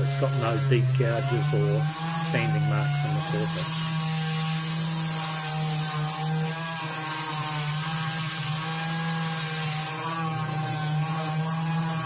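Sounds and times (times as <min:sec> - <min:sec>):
orbital sander on steel: 0:00.0 - 0:12.0.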